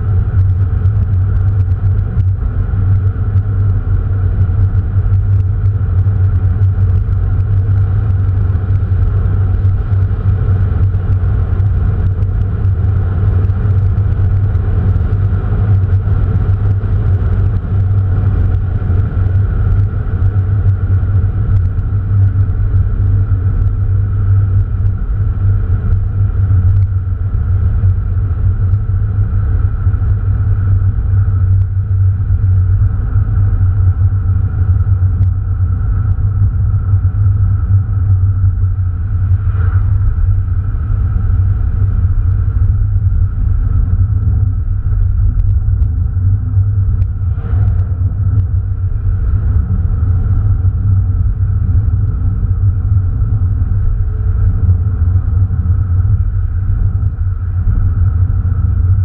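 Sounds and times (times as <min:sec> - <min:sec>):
car engine droning: 0:00.0 - 0:59.0
road noise: 0:00.0 - 0:59.0.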